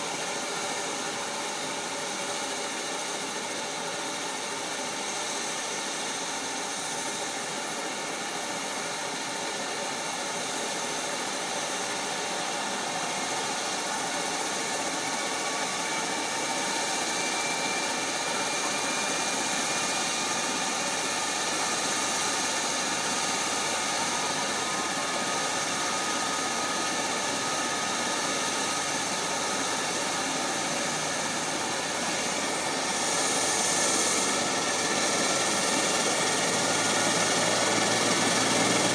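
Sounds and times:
mower engine droning with whine: 12.4s - 38.9s.

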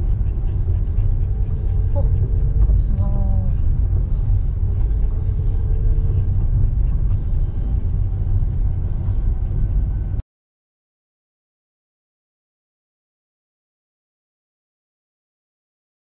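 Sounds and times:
low road rumble in car: 0.0s - 10.2s.

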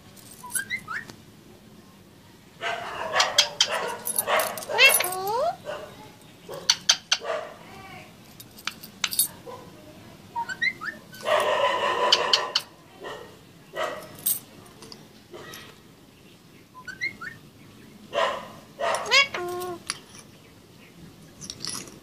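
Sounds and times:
metal keys clinking: 0.2s - 0.8s, 3.6s - 5.4s, 8.3s - 9.4s, 14.0s - 15.0s, 21.3s - 22.0s
parakeet squawks and chirps: 0.5s - 1.1s, 3.1s - 3.8s, 10.4s - 11.0s, 16.7s - 17.4s, 18.9s - 19.8s.

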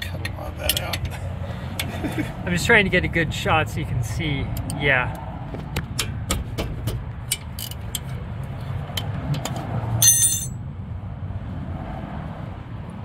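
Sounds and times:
wrench striking metal: 9.4s - 10.6s.

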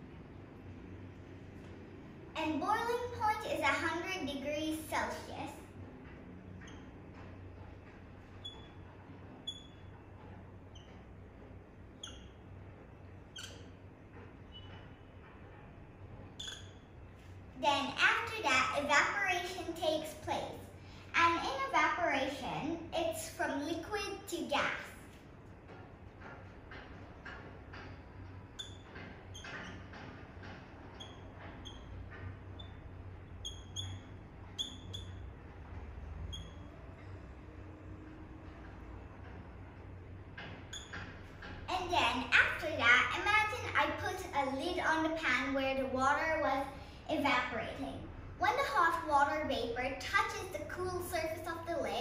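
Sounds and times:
marker squeaking on whiteboard: 6.2s - 17.4s, 26.2s - 37.2s, 40.6s - 43.2s
marker tip squeaks: 8.4s - 8.8s, 9.4s - 9.8s, 12.0s - 12.4s, 13.3s - 13.7s, 16.4s - 16.8s, 33.4s - 35.2s.

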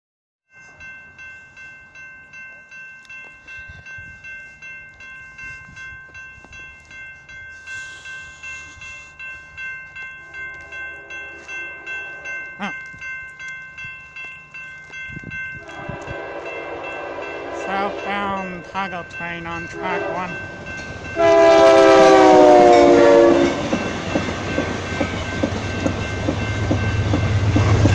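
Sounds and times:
crossing bell ringing: 0.5s - 27.9s
distant train horn: 15.6s - 18.6s, 19.6s - 20.4s, 21.2s - 23.8s.

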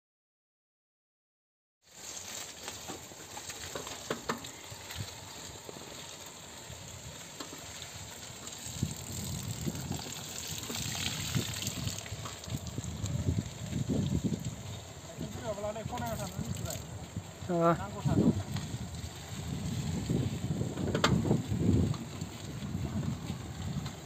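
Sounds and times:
bicycle tyres on wet concrete: 1.8s - 24.0s
wind buffeting on microphone: 8.0s - 24.0s.

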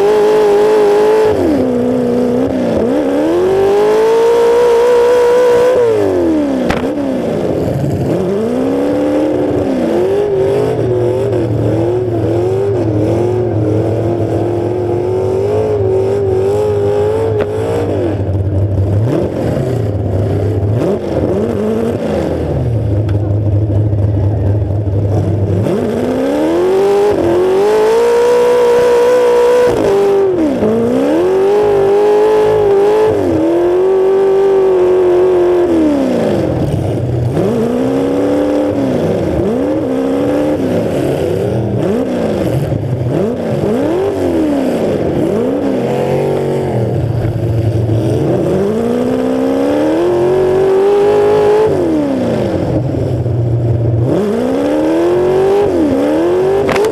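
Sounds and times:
car engine revving: 0.0s - 56.9s
sharp knock: 6.7s - 6.9s.

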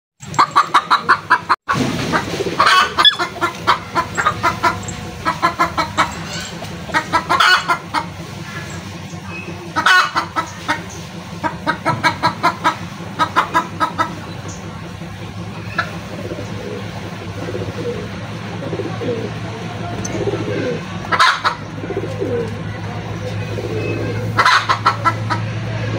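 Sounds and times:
chickens clucking: 0.2s - 25.9s.

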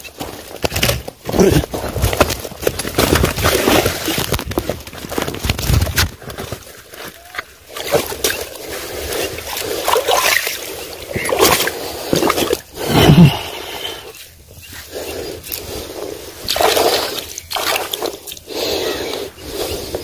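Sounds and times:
water splashing and sloshing: 2.7s - 12.9s, 15.5s - 18.8s.

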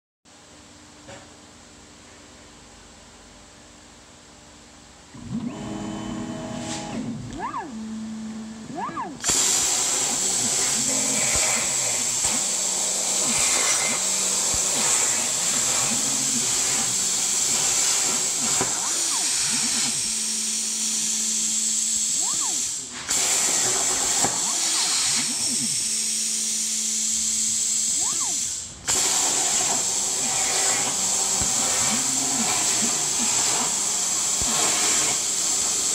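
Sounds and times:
motor whines: 5.2s - 35.9s
plasma arc hissing: 9.2s - 35.9s.

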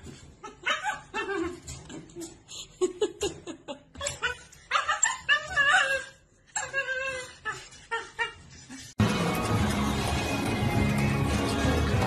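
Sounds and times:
puppy whining and yipping: 0.1s - 2.1s, 4.0s - 9.0s.

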